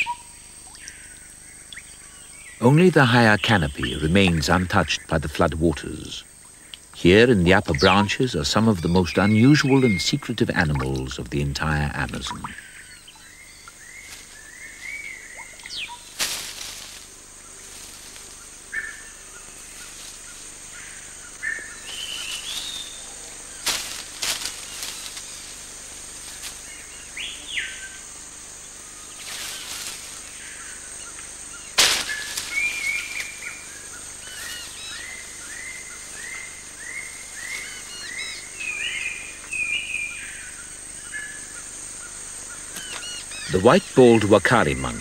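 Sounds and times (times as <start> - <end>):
birds calling and chirping: 0.0 - 45.0
high insect hiss: 0.0 - 45.0
sharp cracks: 31.7 - 33.4.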